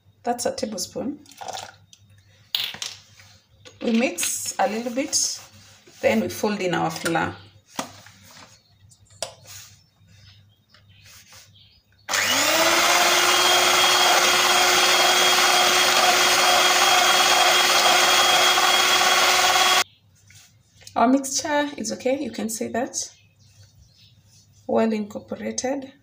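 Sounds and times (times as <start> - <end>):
electric hand mixer whining: 12.1 - 19.8.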